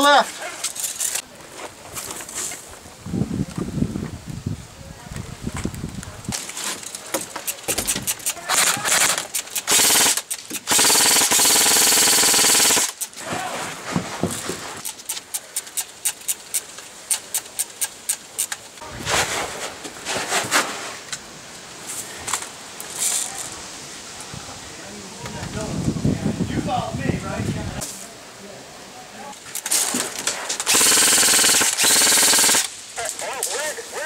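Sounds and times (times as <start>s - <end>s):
airsoft rifles firing full auto: 7.8s - 13.1s, 30.6s - 32.7s.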